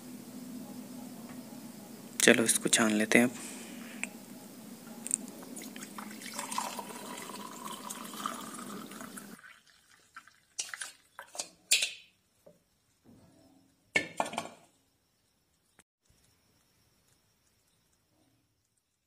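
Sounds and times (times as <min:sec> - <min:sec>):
tea pouring into glass: 0:05.6 - 0:11.2
sharp knocks and clatters: 0:13.9 - 0:14.7.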